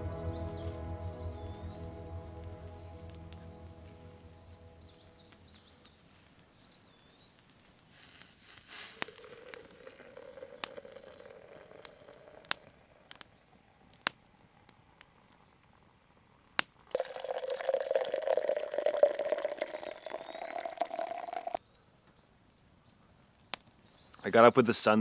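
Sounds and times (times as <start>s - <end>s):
campfire crackling: 0.0s - 21.6s, 22.4s - 24.5s
coffee pouring into metal mug: 9.0s - 13.2s, 16.8s - 21.6s.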